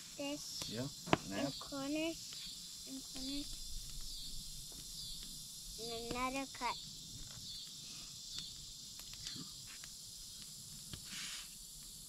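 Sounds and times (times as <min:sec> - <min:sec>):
insect chirring: 0:00.0 - 0:12.0.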